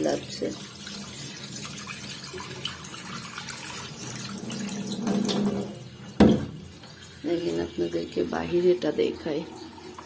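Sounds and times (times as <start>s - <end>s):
water splashing into steel sink: 0.0s - 10.0s
metal bowl knocking on sink: 5.0s - 6.6s.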